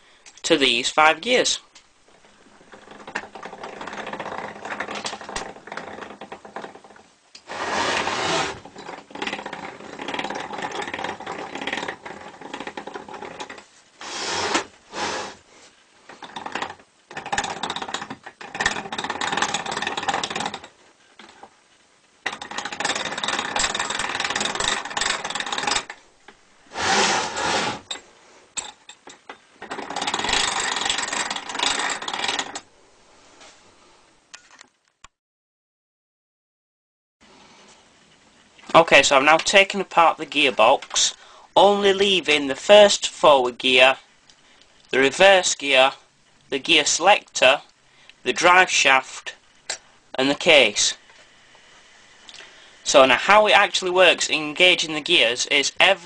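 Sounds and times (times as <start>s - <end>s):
gear train spinning and rattling: 2.2s - 15.4s, 16.1s - 21.5s, 22.2s - 28.0s, 28.6s - 32.7s.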